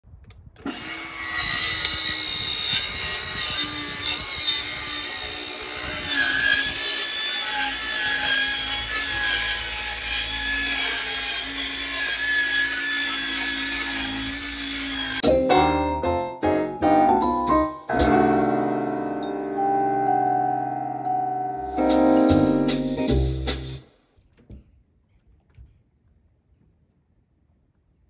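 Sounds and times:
electric saw cutting wood: 0.6s - 15.2s.

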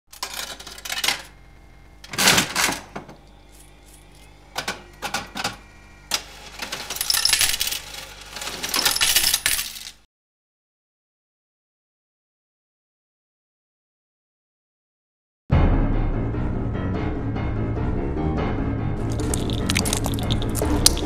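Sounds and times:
coins clattering and jingling: 6.6s - 10.0s, 19.0s - 21.0s.

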